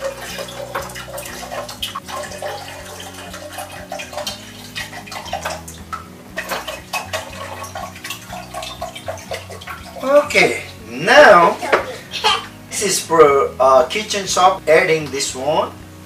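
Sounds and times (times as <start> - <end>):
liquid pouring into glasses: 0.0 - 10.2
liquid splashing and gurgling: 0.0 - 12.6.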